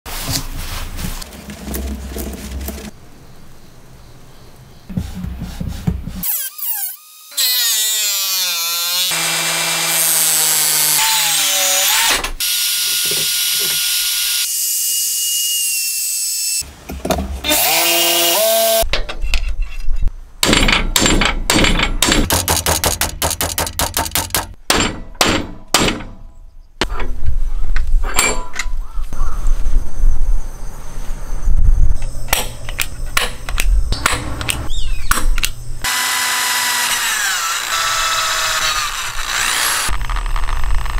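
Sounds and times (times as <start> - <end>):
circular saw cutting wood: 6.2 - 16.6, 17.4 - 18.9, 35.8 - 40.9
motor winding down: 35.8 - 40.9.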